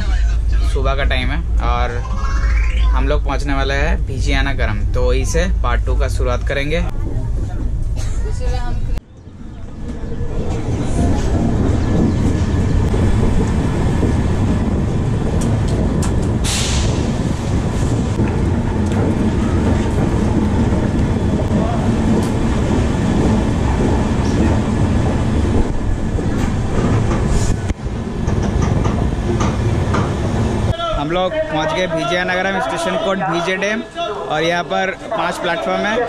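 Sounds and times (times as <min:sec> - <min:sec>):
train wheels rumbling on rail: 0:03.2 - 0:33.8
rail clicks: 0:09.7 - 0:30.8.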